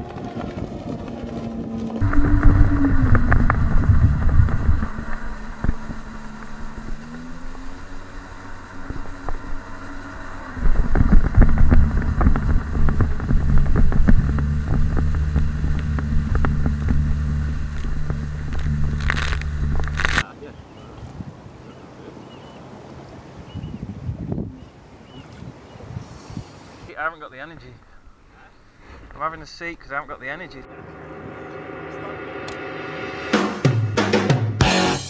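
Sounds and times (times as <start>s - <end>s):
jet ski engine running: 0.0s - 20.2s
wind rushing over microphone: 0.0s - 20.2s, 20.9s - 21.5s, 23.3s - 27.0s.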